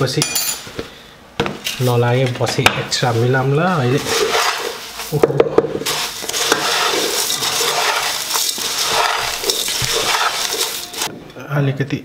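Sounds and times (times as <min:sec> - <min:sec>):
spatula stirring crunchy food in pot: 0:03.0 - 0:11.1.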